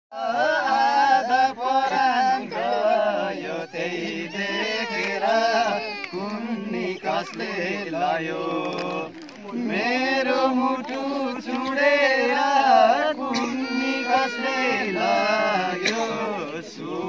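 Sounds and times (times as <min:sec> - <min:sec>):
voices singing folk song: 0:00.1 - 0:17.0.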